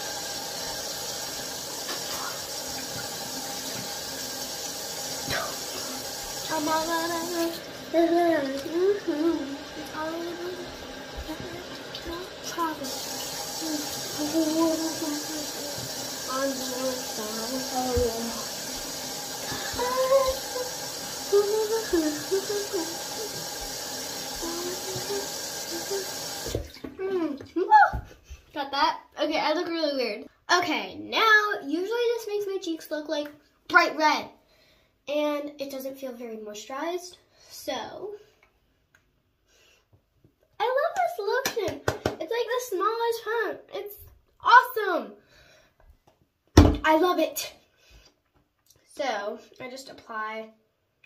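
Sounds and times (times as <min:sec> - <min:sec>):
face rinsing with water: 0:00.0 - 0:26.8
sink tap running: 0:00.0 - 0:26.9
girl's wordless voice: 0:06.5 - 0:13.0, 0:13.6 - 0:18.6, 0:19.5 - 0:20.7, 0:21.3 - 0:23.4, 0:24.4 - 0:26.1, 0:26.8 - 0:34.4, 0:35.0 - 0:38.4, 0:40.6 - 0:45.3, 0:46.8 - 0:47.7, 0:48.7 - 0:50.6
person humming: 0:19.5 - 0:20.7.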